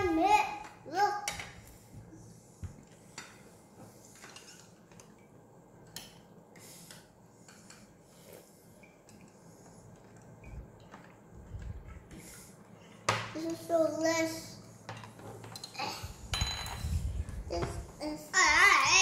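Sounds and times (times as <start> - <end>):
utensils clinking on dishes: 14.9 - 17.0.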